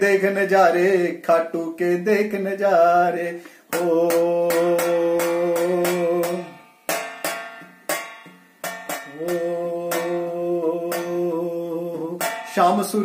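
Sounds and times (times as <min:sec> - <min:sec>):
frame drum beats: 0:03.7 - 0:13.0.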